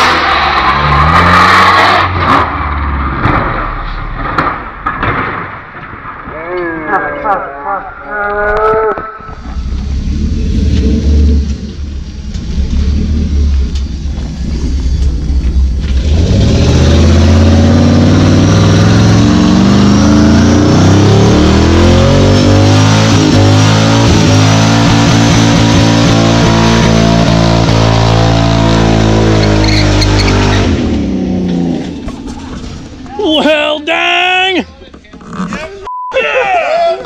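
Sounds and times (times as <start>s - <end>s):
truck engine revving: 0.0s - 5.1s, 9.2s - 33.1s.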